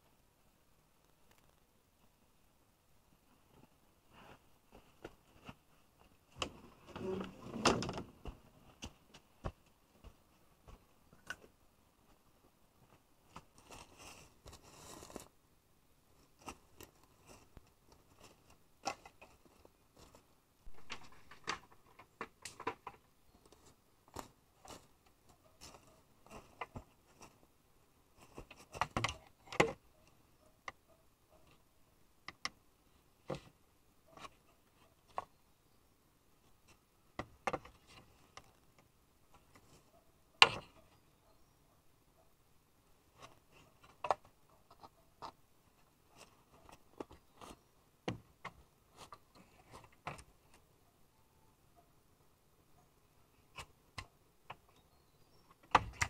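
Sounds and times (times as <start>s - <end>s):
rustling of handled things: 3.2s - 15.4s, 16.1s - 31.8s, 36.4s - 41.1s, 42.9s - 50.8s.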